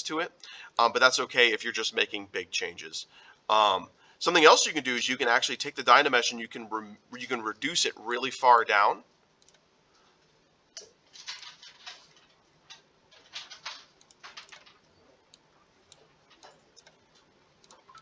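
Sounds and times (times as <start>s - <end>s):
computer mouse clicking: 9.4s - 9.7s, 12.7s - 18.0s.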